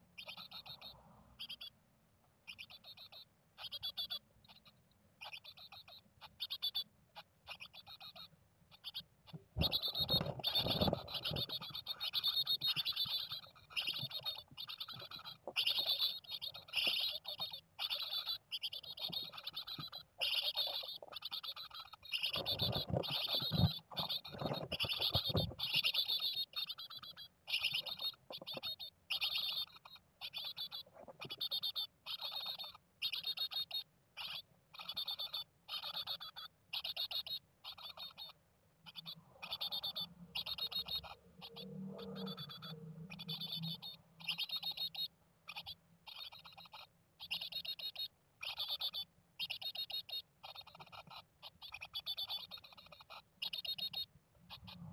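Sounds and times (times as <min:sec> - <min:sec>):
nestlings cheeping: 0:00.1 - 0:01.7, 0:02.4 - 0:54.9
low thumps inside nest box: 0:22.4 - 0:25.8.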